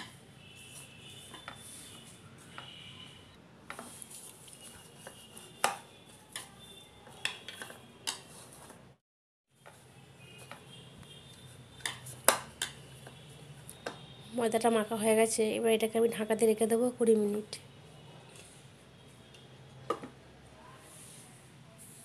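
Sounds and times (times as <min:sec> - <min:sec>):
hands kneading dough: 0:03.6 - 0:09.0.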